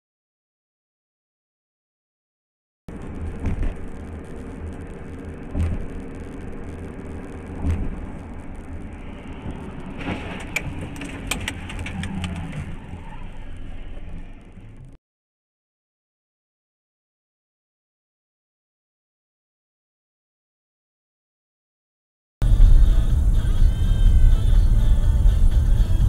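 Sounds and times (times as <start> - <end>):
car road and engine noise: 2.9 - 15.0, 22.4 - 26.0
car passing close: 3.3 - 15.0
sharp clicks and knocks: 9.4 - 12.7.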